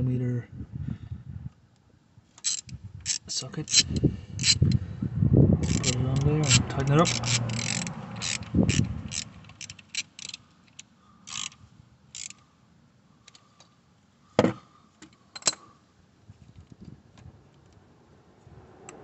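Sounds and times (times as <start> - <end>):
hand ratchet clicking: 2.4 - 4.8, 5.6 - 11.6, 12.2 - 12.4.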